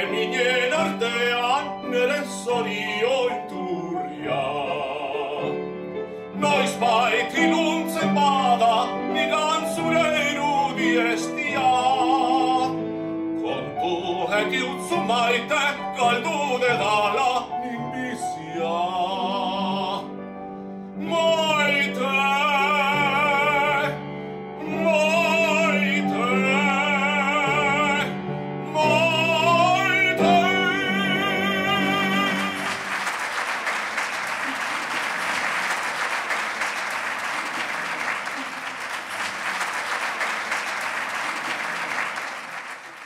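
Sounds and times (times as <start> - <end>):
man singing operatically: 0.0 - 12.8, 13.4 - 20.2, 21.0 - 24.0, 24.6 - 32.9
piano accompaniment: 0.0 - 43.0
audience applause: 32.2 - 43.0.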